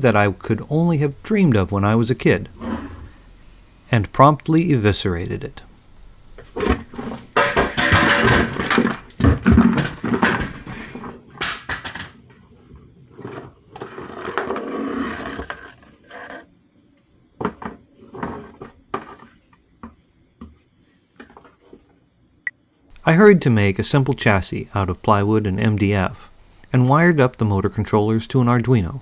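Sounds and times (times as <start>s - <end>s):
plastic and metal parts clattering: 6.6s - 12.2s.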